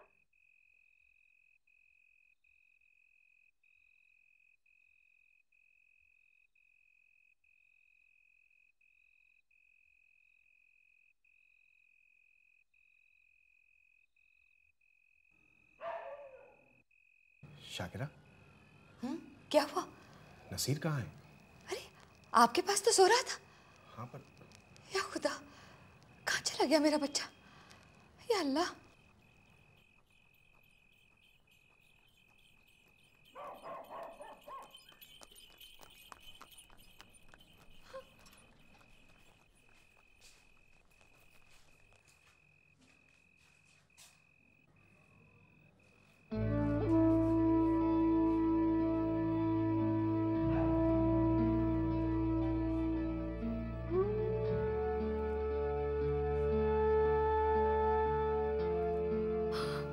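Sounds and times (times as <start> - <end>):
cricket chirping: 0.0 - 56.6
distant dog barking: 15.8 - 16.8, 33.3 - 35.0, 50.4 - 51.4
faint footsteps clicking: 19.9 - 44.3.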